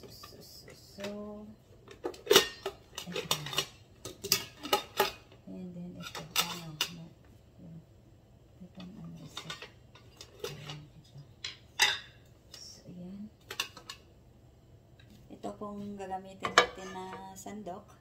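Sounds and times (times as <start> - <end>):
metal utensils clinking: 1.9 - 5.3, 6.0 - 7.0, 8.8 - 10.9, 11.5 - 12.2, 13.4 - 14.0.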